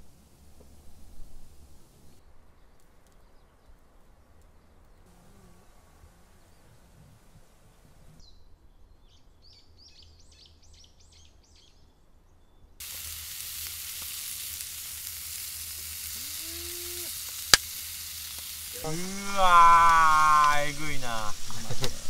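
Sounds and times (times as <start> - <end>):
patty sizzling in a skillet: 12.8 - 22.0.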